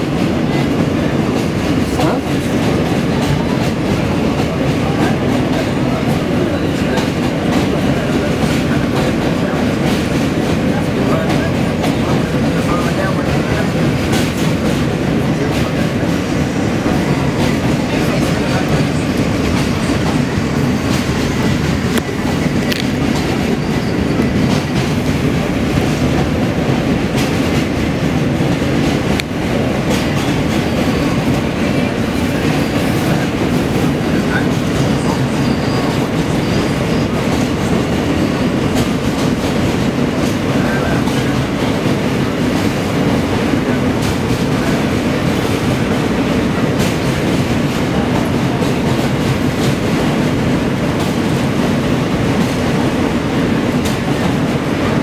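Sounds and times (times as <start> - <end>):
track clicks and clacks: 0.0 - 55.0
train wheels rumbling on rail: 0.0 - 55.0.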